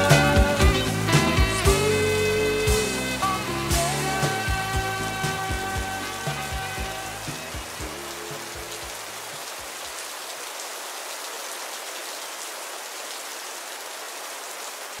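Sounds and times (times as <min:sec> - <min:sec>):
low bass music notes: 0:00.0 - 0:09.1
steady rain: 0:00.0 - 0:15.0.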